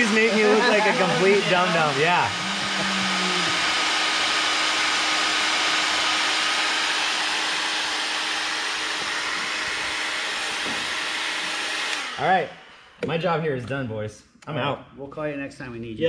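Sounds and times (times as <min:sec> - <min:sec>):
heat gun blowing: 0:00.0 - 0:13.0.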